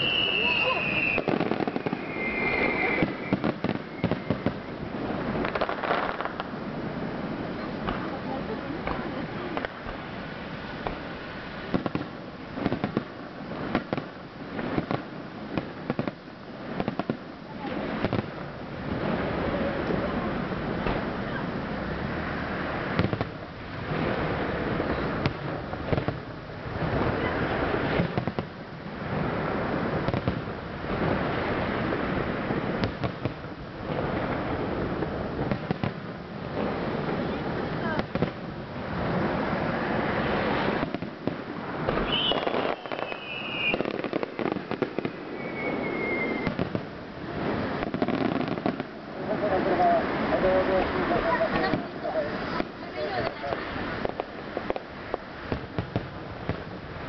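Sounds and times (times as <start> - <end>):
firework shells bursting: 0.0 - 4.7, 40.4 - 46.9
falling firework whistle: 0.0 - 4.8, 41.9 - 46.8
rumble and crackle of fireworks: 0.0 - 57.0.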